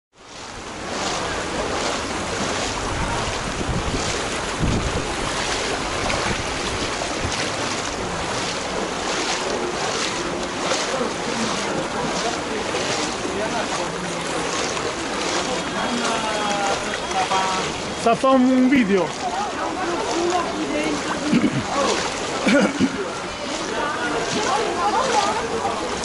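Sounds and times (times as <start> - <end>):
boots splashing through water: 0.2 - 26.0
wind buffeting microphone: 0.5 - 10.4.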